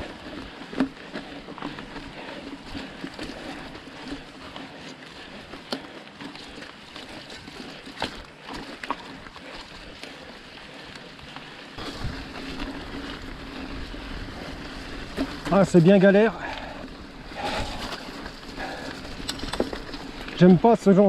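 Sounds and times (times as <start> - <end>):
wet bike tyres on muddy trail: 0.0 - 21.0
wind noise on microphone: 11.8 - 15.3
bike knocks and rattles: 17.4 - 20.4.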